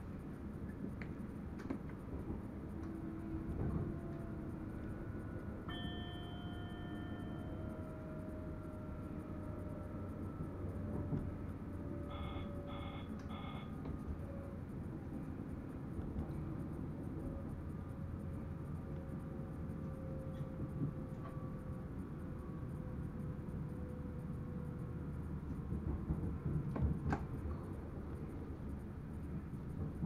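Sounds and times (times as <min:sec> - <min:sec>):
train running gear rumble: 0:00.0 - 0:30.0
cab warning beeps: 0:12.0 - 0:14.0.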